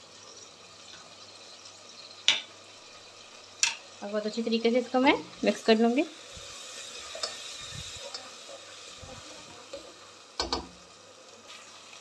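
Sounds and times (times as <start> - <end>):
meat sizzling in oil: 0.0 - 12.0
spatula stirring and scraping: 6.3 - 10.0
spatula clatter: 7.0 - 8.3.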